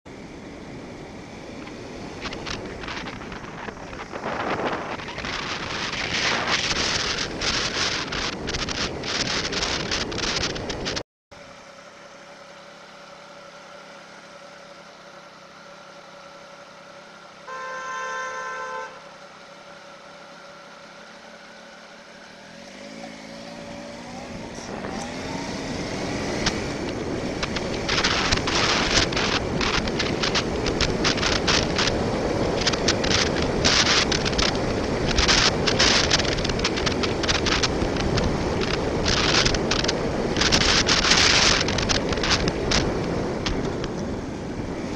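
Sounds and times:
wind buffeting helmet camera: 1.4 - 11.0, 22.6 - 44.9
motorcycle engine revving: 1.6 - 11.0, 21.0 - 44.9
vehicle horn: 17.4 - 19.1.

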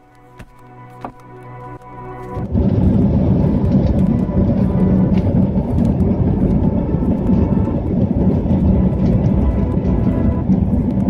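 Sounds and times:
jet engines at takeoff power: 2.4 - 11.0.

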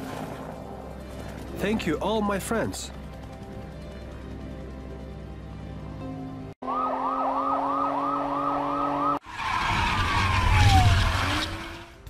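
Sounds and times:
police siren yelping: 6.6 - 11.4.

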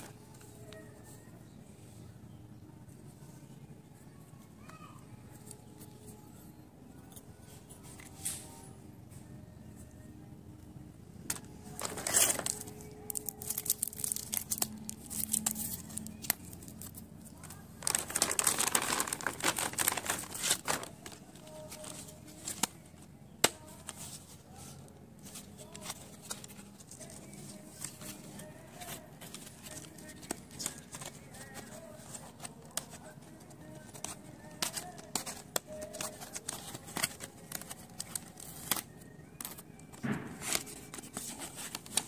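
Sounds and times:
plastic packaging crinkling: 11.7 - 22.8, 25.3 - 42.0.

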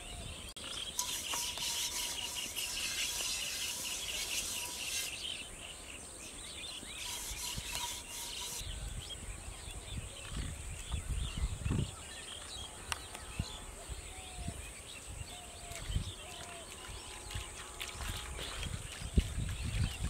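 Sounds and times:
metal pot being scrubbed: 0.9 - 5.6, 6.8 - 8.6.

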